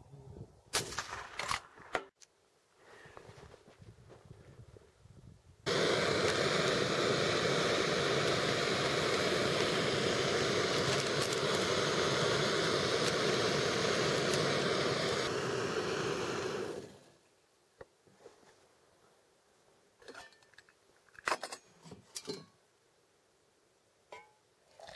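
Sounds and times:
gas stove burner hissing: 5.7s - 17.2s.

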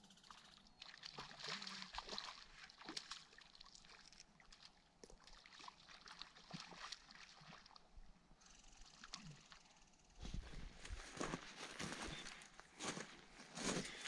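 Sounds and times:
small waves lapping: 0.2s - 9.6s.

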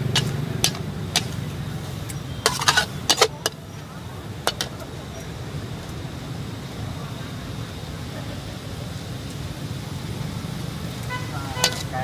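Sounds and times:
metal spatula scraping wok: 0.0s - 3.7s, 4.4s - 5.2s, 11.5s - 12.0s
low rushing noise: 0.0s - 12.0s.

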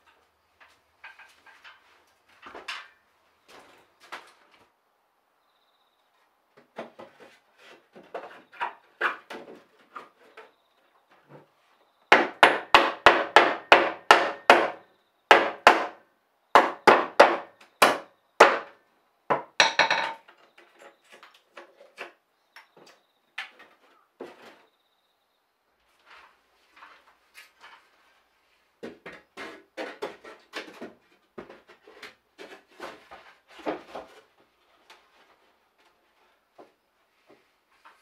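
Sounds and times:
hammer striking wood: 12.1s - 16.0s, 16.6s - 20.2s.

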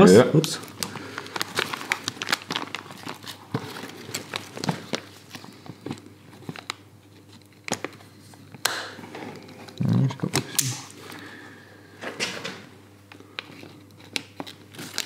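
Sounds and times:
plastic film crinkling: 0.2s - 8.4s, 13.4s - 15.0s.

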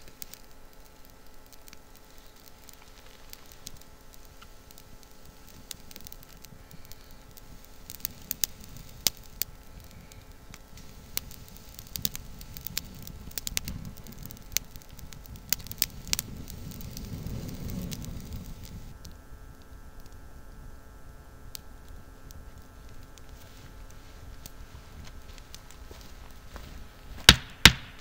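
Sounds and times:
kindling fire crackling: 0.0s - 28.0s
low rushing of blown air: 4.7s - 19.0s.

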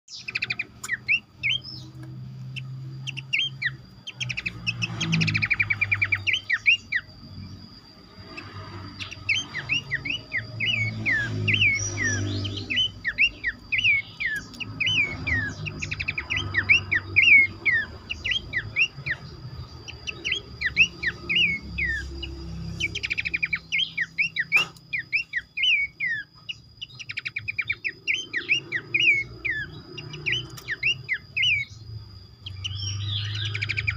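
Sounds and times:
birds chirping and whistling: 0.1s - 33.9s.

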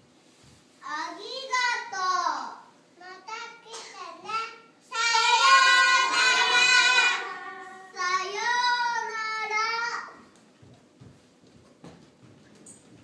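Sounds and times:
young children singing: 3.7s - 10.2s.

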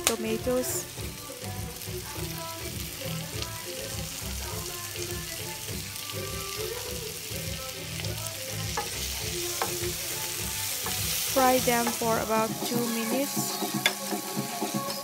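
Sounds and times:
tomatoes sizzling in hot oil: 0.0s - 15.0s
background music with pulsing beat: 8.1s - 15.0s.

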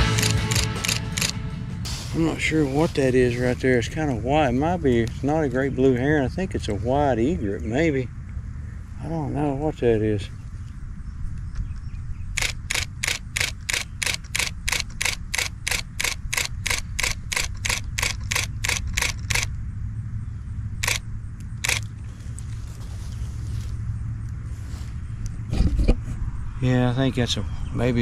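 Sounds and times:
camera shutter firing: 0.0s - 1.4s, 12.3s - 19.5s, 20.8s - 21.0s, 21.6s - 21.9s.

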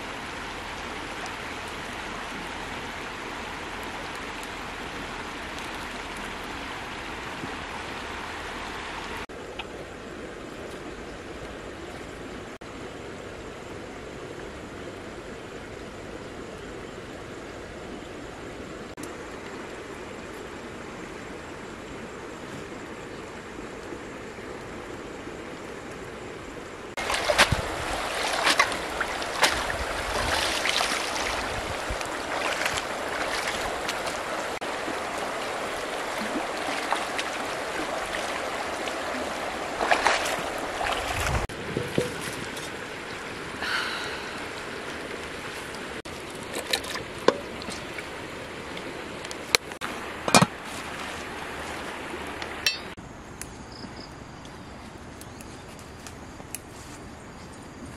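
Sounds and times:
running river water: 0.0s - 57.9s
splashing in shallow water: 26.9s - 53.0s.

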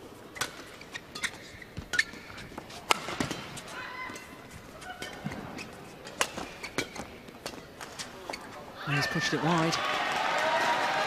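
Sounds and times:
court shoes squeaking: 0.0s - 9.7s
rackets striking shuttlecock: 0.4s - 4.3s.

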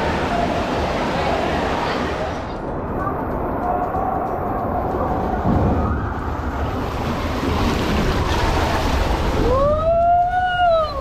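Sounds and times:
water rushing: 0.0s - 11.0s
wind noise on microphone: 0.0s - 11.0s
rider sliding down water slide: 4.4s - 11.0s.

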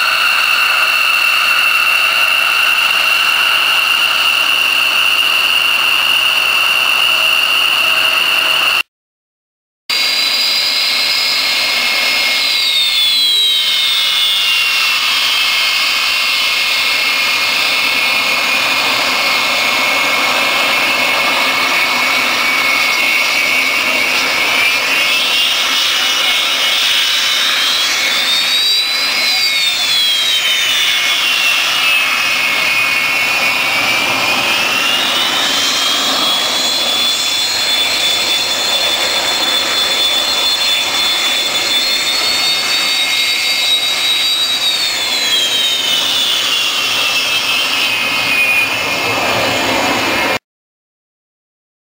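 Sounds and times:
jet engine roaring and whining: 0.0s - 8.8s, 9.9s - 50.4s
level second whine: 10.0s - 50.4s.

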